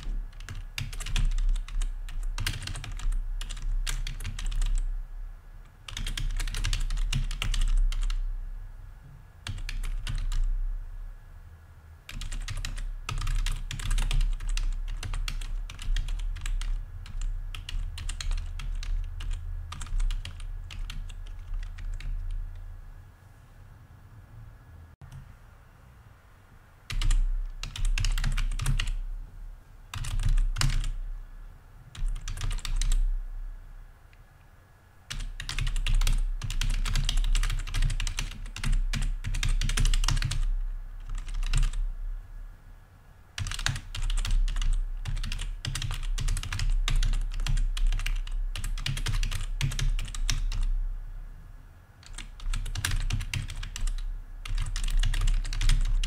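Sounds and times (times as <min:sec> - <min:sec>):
fast keyboard typing: 0:00.0 - 0:04.9, 0:05.8 - 0:08.3, 0:09.4 - 0:10.5, 0:12.1 - 0:22.6, 0:26.9 - 0:29.0, 0:29.9 - 0:31.0, 0:32.0 - 0:33.1, 0:35.1 - 0:41.8, 0:43.4 - 0:50.7, 0:52.0 - 0:56.0.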